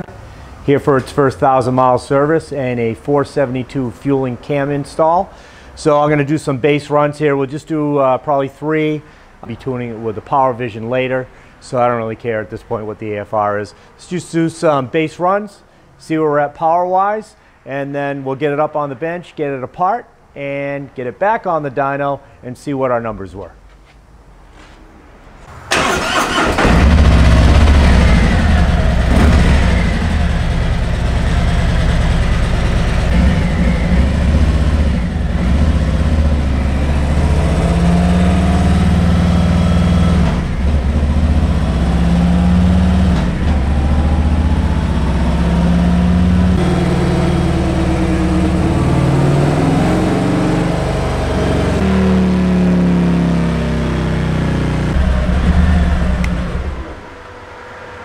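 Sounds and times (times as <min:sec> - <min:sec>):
motorcycle engine revving: 0:25.7 - 0:57.3.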